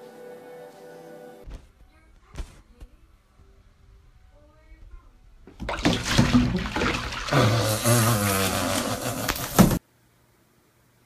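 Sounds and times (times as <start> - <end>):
bathwater splashing: 5.4 - 9.8.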